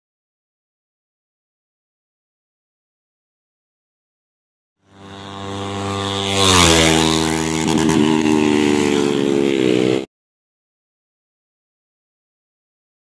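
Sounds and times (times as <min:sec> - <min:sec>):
motorcycle engine passing: 0:04.8 - 0:10.1.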